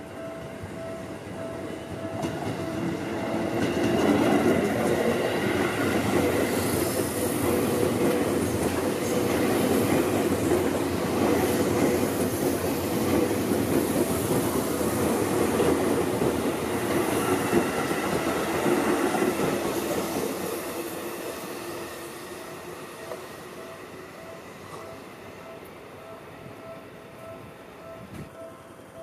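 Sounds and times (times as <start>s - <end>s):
train wheels rumbling on rails: 0.0s - 25.6s
train whine: 0.0s - 29.0s.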